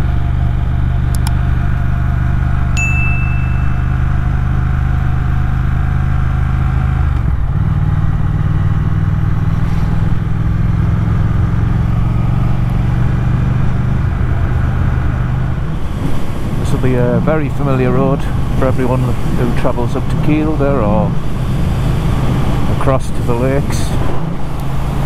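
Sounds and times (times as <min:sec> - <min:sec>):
motorcycle engine running: 0:00.0 - 0:16.4.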